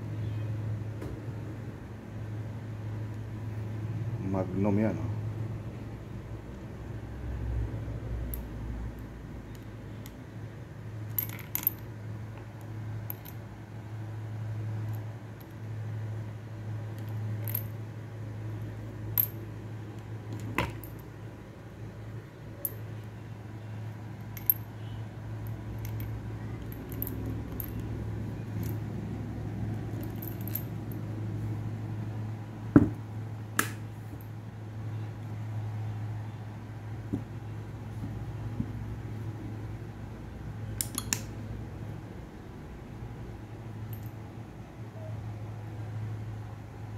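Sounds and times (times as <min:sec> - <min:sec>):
metal cartridges clinking: 0:11.0 - 0:11.9, 0:13.0 - 0:13.4, 0:17.0 - 0:17.8, 0:18.6 - 0:21.2, 0:24.2 - 0:28.8, 0:29.8 - 0:31.0.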